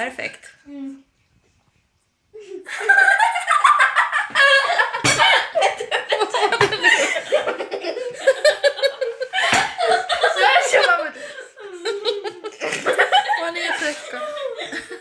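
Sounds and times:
person laughing hard: 0:02.5 - 0:10.7.

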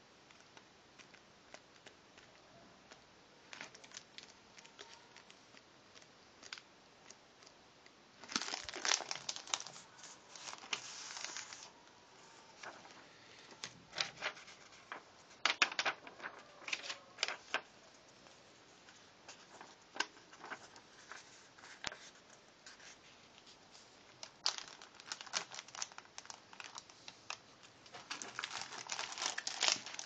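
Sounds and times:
plastic packaging crinkling: 0:03.5 - 0:07.6, 0:08.2 - 0:17.7, 0:19.3 - 0:22.2, 0:23.7 - 0:30.0
paper sheets rustling: 0:08.3 - 0:17.7, 0:18.8 - 0:27.2, 0:27.9 - 0:30.0.

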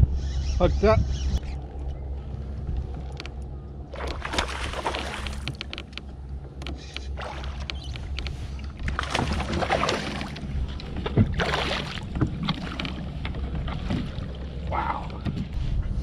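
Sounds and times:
steady low rumble: 0:00.0 - 0:16.0
water splashing against kayak: 0:03.9 - 0:06.0, 0:07.0 - 0:15.6.

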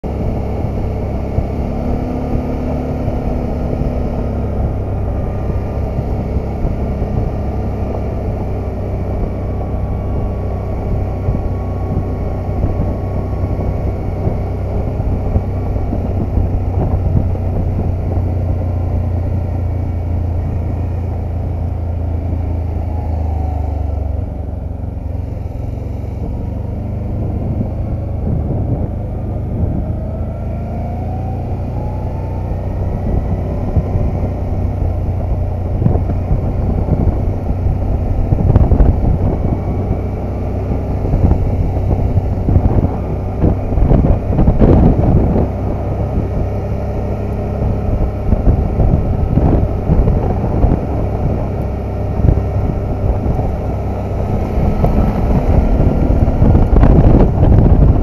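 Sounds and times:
vehicle engine running: 0:00.0 - 0:58.0
wind noise: 0:00.0 - 0:58.0.

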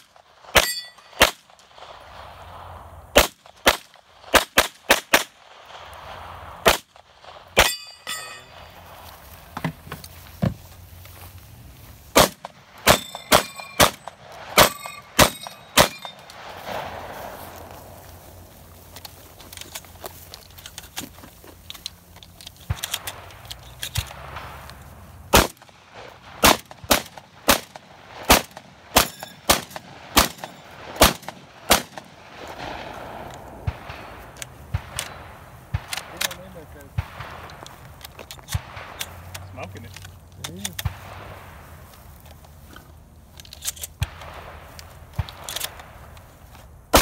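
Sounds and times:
shotgun shots: 0:00.0 - 0:02.5, 0:03.1 - 0:08.9, 0:12.1 - 0:18.0, 0:25.3 - 0:37.8, 0:38.4 - 0:39.7
steel targets ringing: 0:00.5 - 0:01.2, 0:07.6 - 0:08.9, 0:12.8 - 0:16.3, 0:29.0 - 0:29.5
shells being loaded: 0:06.7 - 0:10.2, 0:12.1 - 0:16.5, 0:18.8 - 0:25.7, 0:34.3 - 0:36.6, 0:37.2 - 0:41.0, 0:41.8 - 0:47.0.

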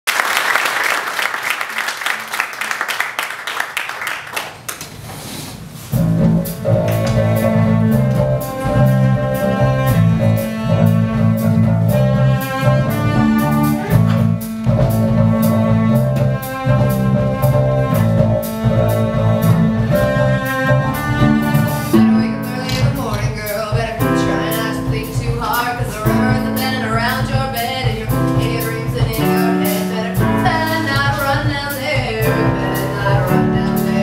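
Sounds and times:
audience clapping: 0:00.0 - 0:05.1
small band playing: 0:05.6 - 0:34.0.

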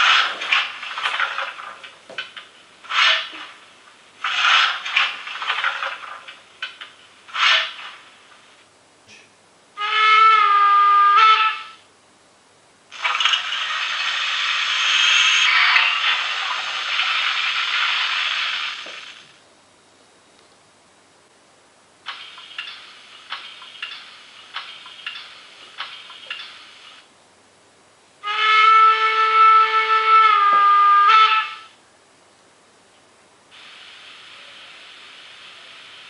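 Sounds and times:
long steady hiss: 0:00.0 - 0:36.0
short hissing bursts: 0:12.9 - 0:19.2, 0:33.5 - 0:36.0.

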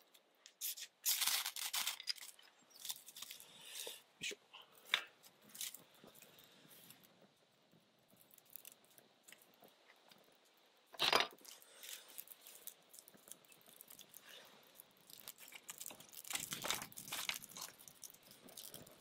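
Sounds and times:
campfire crackling and popping: 0:04.8 - 0:19.0.

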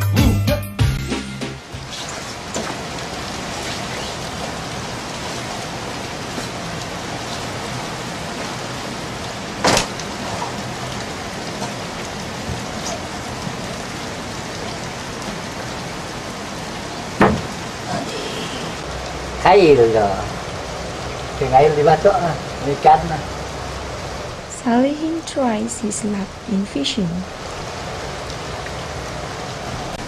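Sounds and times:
rain on boat roof and river: 0:00.8 - 0:30.0
sharp knock: 0:17.2 - 0:17.5.

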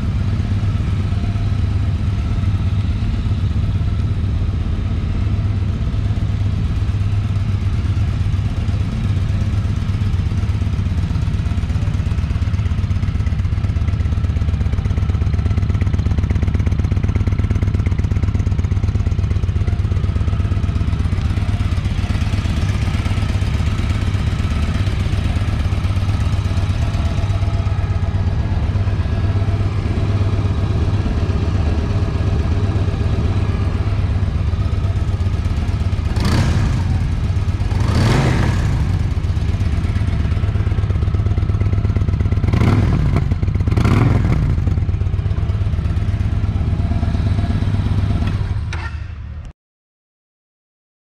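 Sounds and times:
motorcycle engine idling: 0:00.0 - 0:49.4
engine throttle revs: 0:22.2 - 0:39.6, 0:42.5 - 0:44.7.

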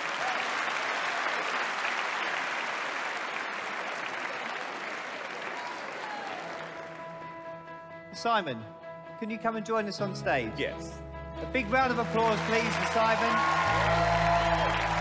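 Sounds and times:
audience applauding: 0:00.0 - 0:07.4, 0:11.8 - 0:15.0.

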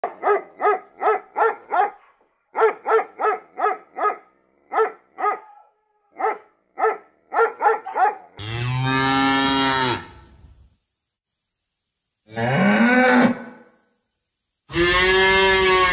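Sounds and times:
dog barking: 0:00.0 - 0:08.4
cow mooing: 0:08.4 - 0:10.2, 0:14.7 - 0:15.9.

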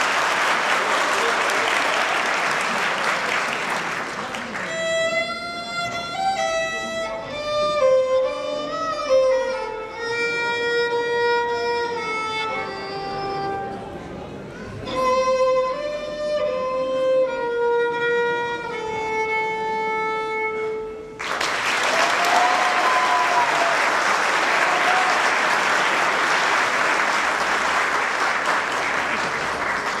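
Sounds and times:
audience applause: 0:00.0 - 0:04.8, 0:21.2 - 0:30.0
solo violin: 0:04.6 - 0:13.8, 0:14.5 - 0:21.2.

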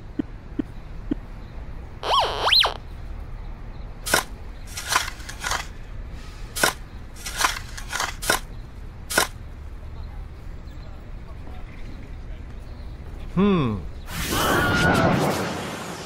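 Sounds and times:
metal detector tones: 0:02.0 - 0:02.8
shovel digging into dirt: 0:04.0 - 0:05.7, 0:06.6 - 0:08.5, 0:09.1 - 0:09.4.

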